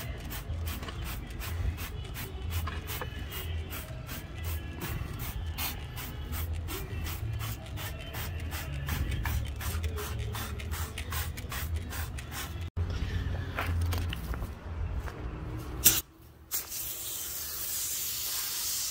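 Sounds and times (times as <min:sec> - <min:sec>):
spray bottle squirts: 0:15.8 - 0:18.9.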